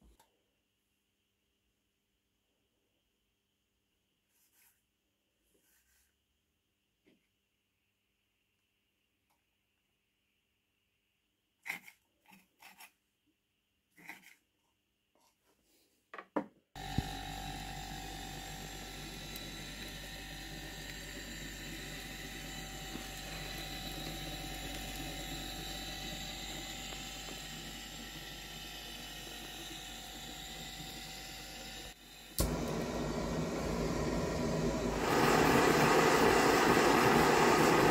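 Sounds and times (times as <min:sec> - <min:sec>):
compressor humming: 0:16.8 - 0:37.9.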